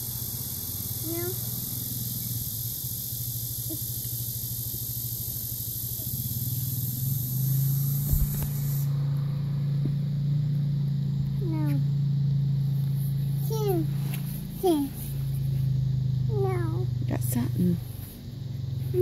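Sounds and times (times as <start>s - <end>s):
low mechanical hum: 0.0s - 19.0s
low thumps: 8.0s - 8.7s.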